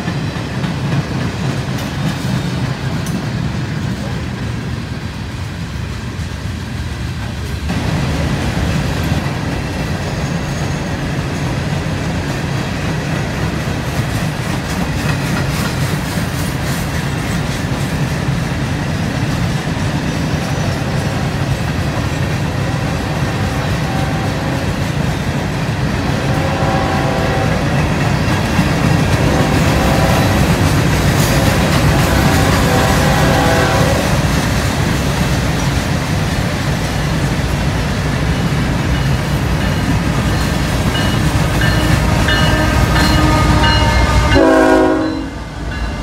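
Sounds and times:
steel wheels clattering on rails: 0.0s - 4.9s, 6.0s - 26.2s, 27.6s - 44.2s
freight train rumble: 0.0s - 46.0s
higher tone: 41.0s - 46.0s.

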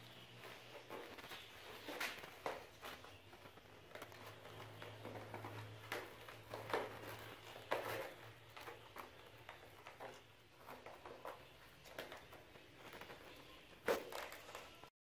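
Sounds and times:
kittens scrabbling in a plastic crate: 0.0s - 14.9s.

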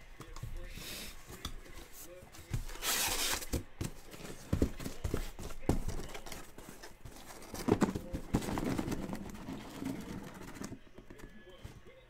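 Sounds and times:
cardboard scraping: 2.5s - 11.4s
boxes knocking in cardboard case: 2.6s - 11.1s.

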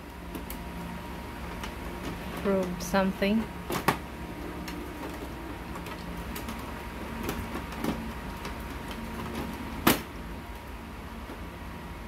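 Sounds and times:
plastic scraping: 1.4s - 10.1s.

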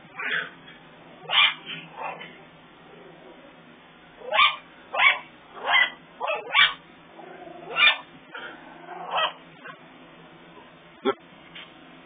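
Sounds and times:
small dog barking: 1.2s - 2.3s, 4.2s - 6.8s, 7.6s - 8.1s, 9.0s - 9.8s.

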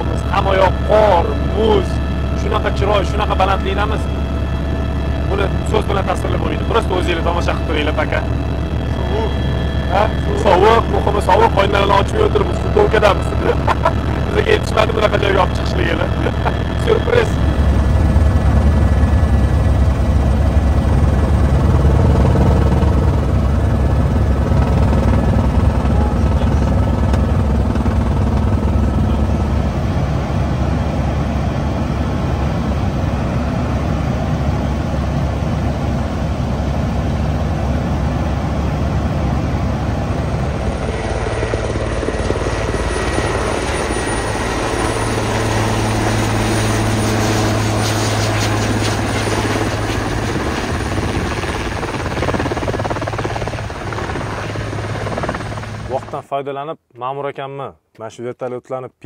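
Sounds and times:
high-pitched noise: 0.0s - 23.2s
helicopter rotor and turbine: 0.0s - 56.2s
steady low hum: 0.0s - 56.2s.

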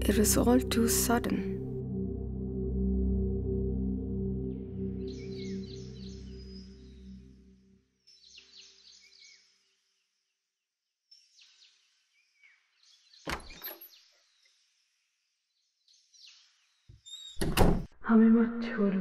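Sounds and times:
faint birds chirping: 4.4s - 17.8s
door thunk: 13.3s - 13.9s, 17.4s - 17.9s.

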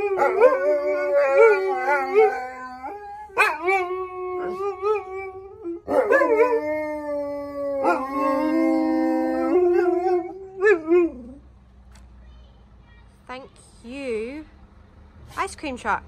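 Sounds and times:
dogs howling: 0.0s - 11.4s.

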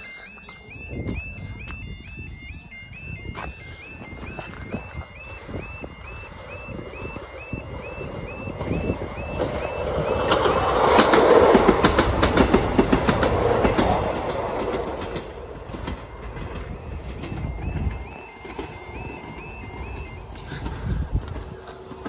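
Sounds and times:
crossing alarm warbling: 0.0s - 22.0s
train passing: 0.0s - 22.0s
wheels clattering over rail joints: 6.3s - 22.0s.

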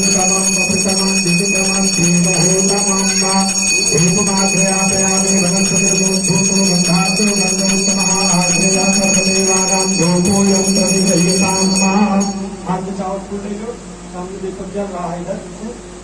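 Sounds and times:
hand bell ringing: 0.0s - 12.6s
man chanting: 0.0s - 15.8s.

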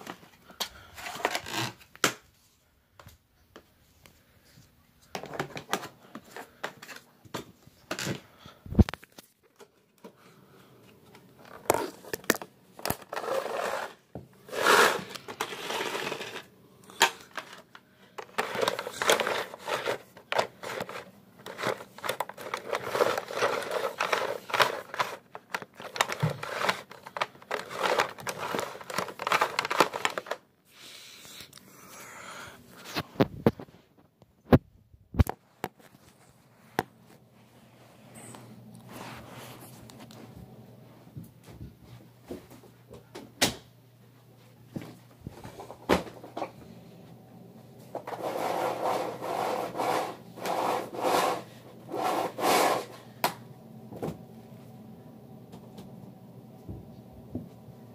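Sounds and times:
rustling and crinkling: 0.0s - 30.4s, 35.2s - 42.8s.

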